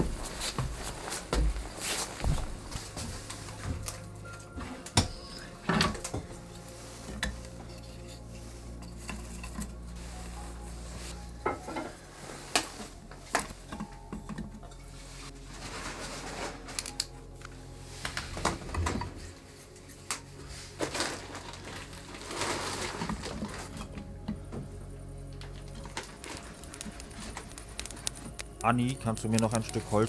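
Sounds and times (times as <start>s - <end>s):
low hum: 0.0s - 30.0s
small hard objects clinking: 25.2s - 30.0s.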